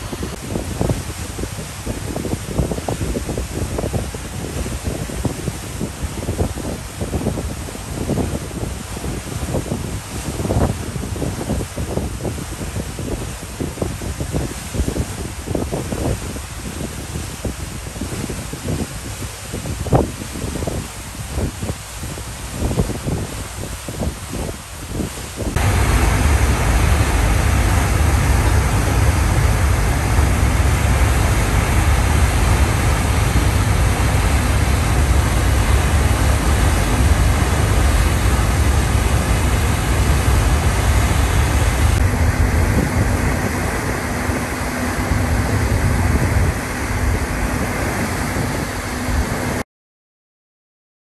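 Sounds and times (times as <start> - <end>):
steady low hum: 0.0 - 1.8, 25.5 - 49.6
propeller wake churning: 0.0 - 49.6
wind over deck: 0.0 - 49.6
ship engines droning: 25.6 - 49.6.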